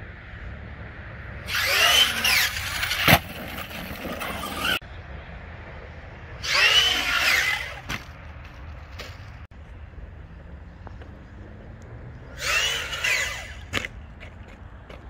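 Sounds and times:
electric motor whining: 1.5s - 3.2s, 6.4s - 7.9s, 12.4s - 13.8s.

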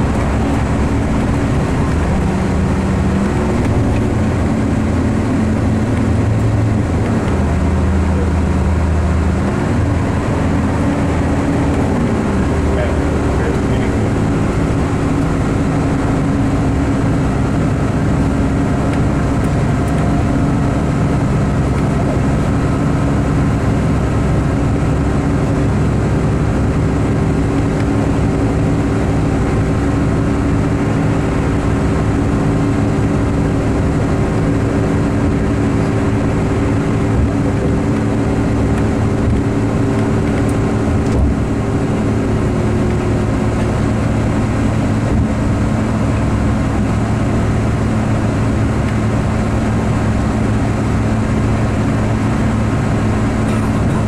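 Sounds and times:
bus engine running steadily: 0.0s - 54.0s
low rumble: 0.0s - 54.0s.

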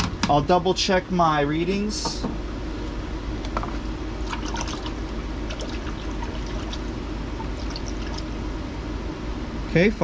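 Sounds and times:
steady low hum: 0.0s - 10.0s
water trickling and dripping: 4.2s - 8.3s.

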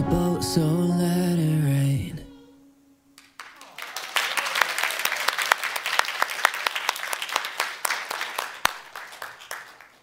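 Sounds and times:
audience applauding: 3.2s - 10.0s.

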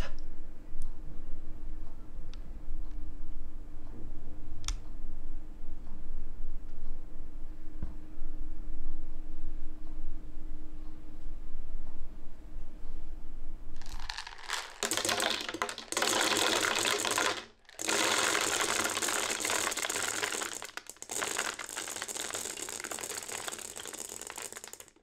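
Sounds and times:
kibble pouring into plastic jar: 13.8s - 25.0s.

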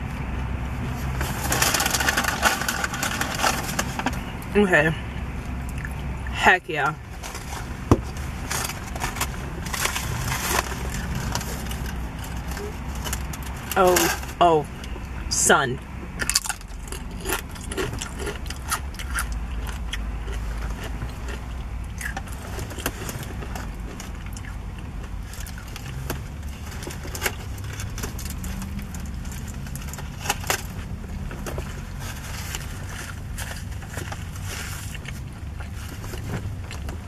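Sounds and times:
steady low rumble: 0.0s - 37.0s
person chewing food: 5.6s - 6.0s, 16.2s - 37.0s
chips crunching: 16.2s - 36.9s.

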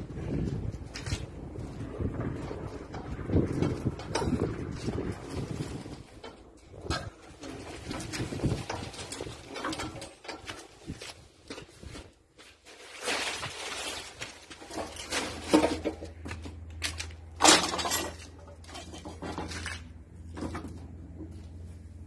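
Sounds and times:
diesel engine humming: 0.0s - 9.5s, 18.2s - 22.0s
metallic clanks and rattles: 1.0s - 11.7s, 14.5s - 21.7s.

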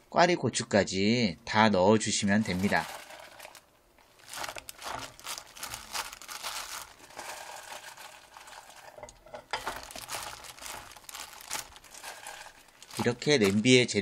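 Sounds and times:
plastic glove crinkling: 2.2s - 14.0s
peppers dropped into pot: 4.4s - 13.7s.

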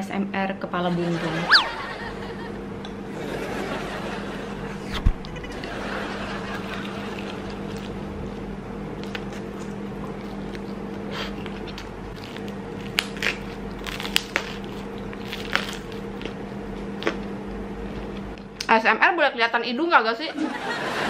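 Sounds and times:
steady low hum: 0.0s - 21.0s
chewing crunchy pizza: 6.8s - 18.5s.

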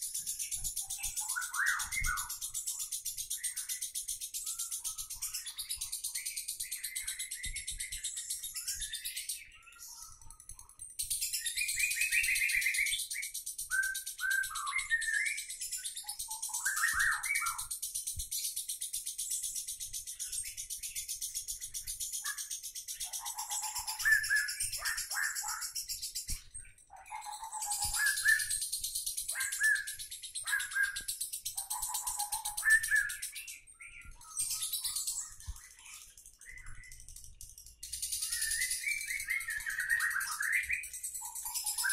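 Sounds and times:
lovebird chirps and squeaks: 0.0s - 41.9s
lovebird chattering trill: 26.9s - 33.3s.

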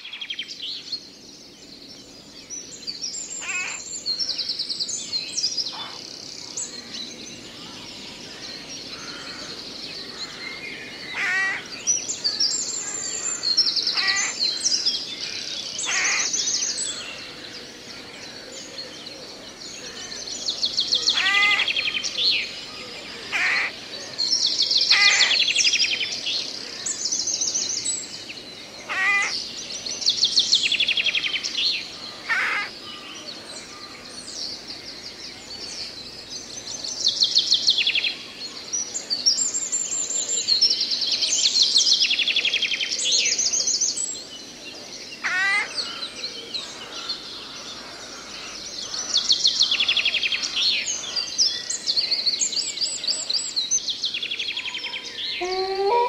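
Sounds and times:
songbirds trilling: 0.0s - 56.0s
short low bird calls: 55.4s - 56.0s.

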